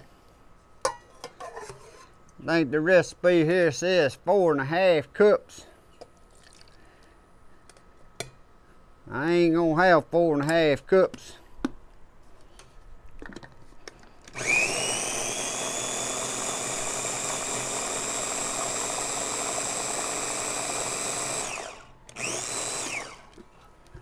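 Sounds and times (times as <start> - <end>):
food chopper motor whine: 14.3 - 23.5.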